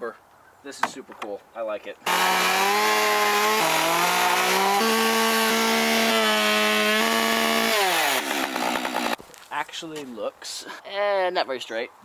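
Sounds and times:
chainsaw cutting through log: 2.0s - 9.2s.

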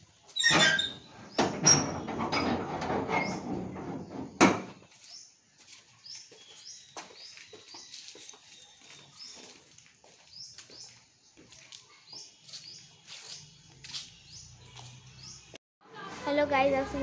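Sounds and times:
sheet-metal gate rattling: 0.4s - 4.8s
small birds chirping: 4.0s - 15.6s.

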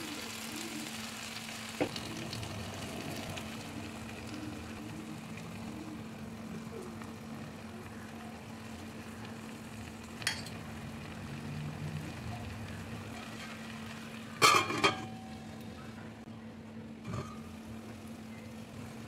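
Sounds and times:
food sizzling in a pan: 0.0s - 15.6s
steel lid clattering on pan: 14.4s - 15.3s.

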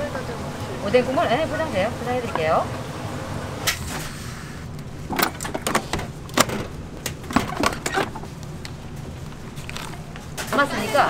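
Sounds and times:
plastic trays clicking and knocking: 5.1s - 8.2s.

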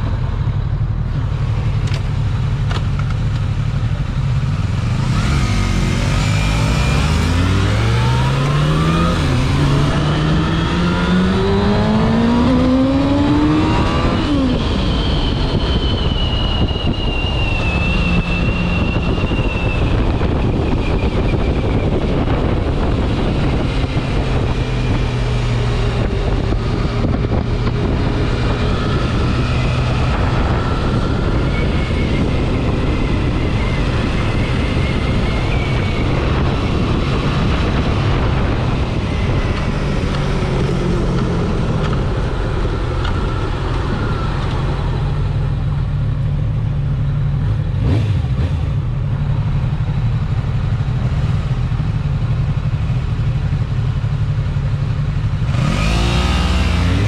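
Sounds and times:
motorcycle engine accelerating: 0.0s - 57.0s
wind rushing noise: 4.7s - 45.7s.

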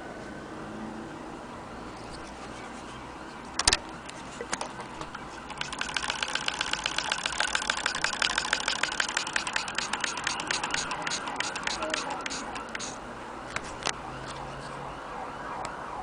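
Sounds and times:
sharp click: 4.5s - 12.9s
sewing machine clicking: 5.1s - 12.0s.

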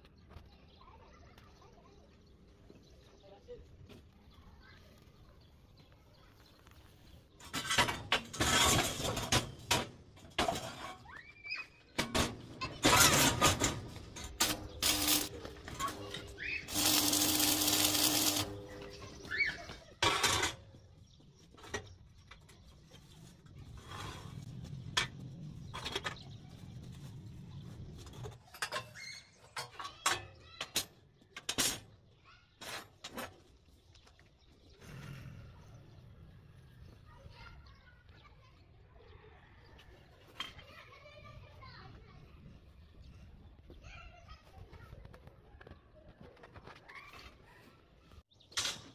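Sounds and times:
grating metal scrape: 12.8s - 18.7s.

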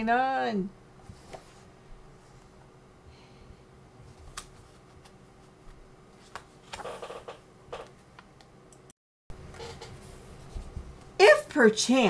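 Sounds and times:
book clicks and rustles: 6.2s - 7.9s.

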